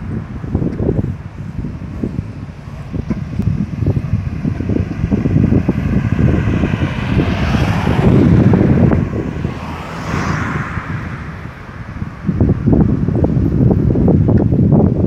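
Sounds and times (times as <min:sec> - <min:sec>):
cars passing: 0:00.0 - 0:15.0
wind buffeting microphone: 0:00.0 - 0:15.0.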